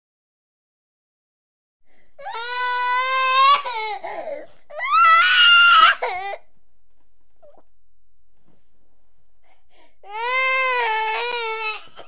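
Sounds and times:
baby crying: 0:02.2 - 0:06.4, 0:10.0 - 0:12.0.

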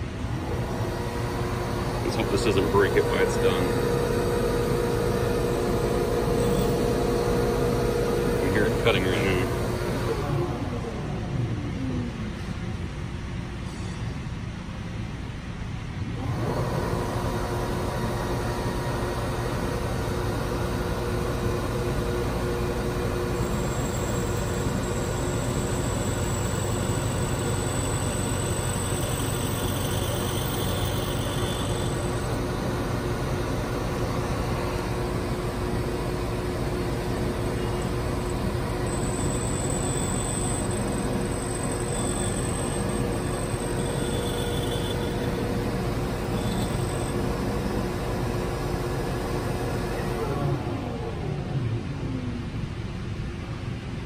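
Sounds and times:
faint high whine: 0:00.0 - 0:12.9, 0:17.9 - 0:53.0
key-cutting machine humming: 0:00.4 - 0:10.3, 0:16.2 - 0:49.3.

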